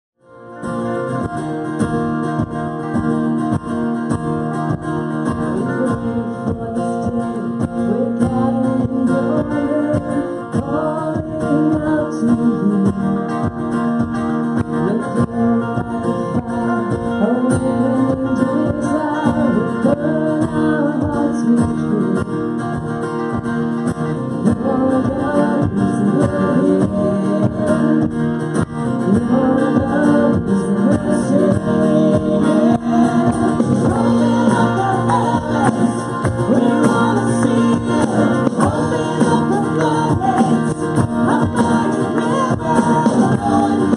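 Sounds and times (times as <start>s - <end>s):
drums: 0.2s - 43.9s
electric guitar: 0.2s - 43.9s
strummed acoustic guitar: 0.2s - 43.9s
woman singing: 5.3s - 13.5s, 14.8s - 22.5s, 24.4s - 28.2s, 29.0s - 43.9s
man singing: 5.3s - 13.7s, 14.6s - 22.7s, 24.4s - 43.9s.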